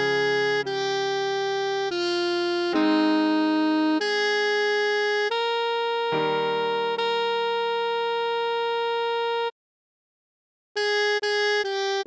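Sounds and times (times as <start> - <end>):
sustained keyboard chords: 0.0 - 8.3
electronic saxophone melody: 0.0 - 9.5, 10.8 - 12.0.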